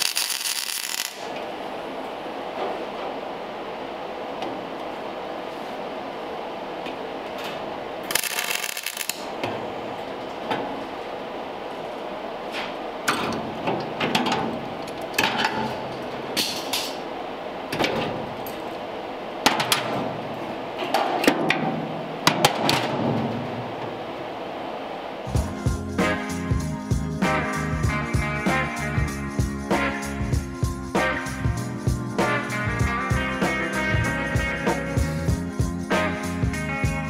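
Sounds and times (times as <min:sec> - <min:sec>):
welding arc crackling: 0:00.0 - 0:01.5, 0:08.0 - 0:09.4.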